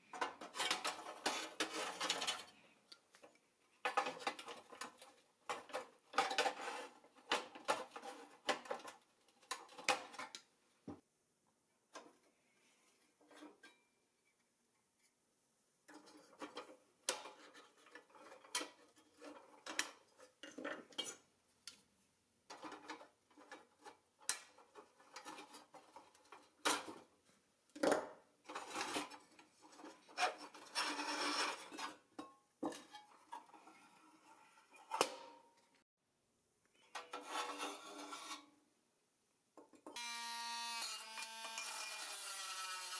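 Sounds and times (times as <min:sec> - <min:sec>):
metal rubbing scrapes: 0:28.6 - 0:32.1, 0:37.1 - 0:38.5.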